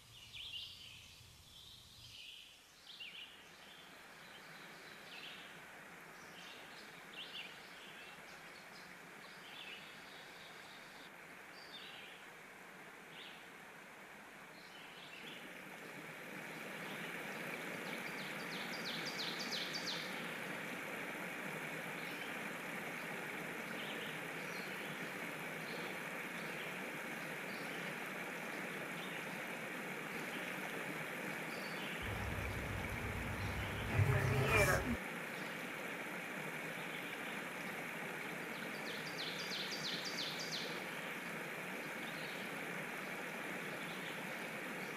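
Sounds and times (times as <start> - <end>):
birds chirping: 32.0 - 35.0
low hum: 32.0 - 35.0
steady rushing noise: 32.0 - 35.0.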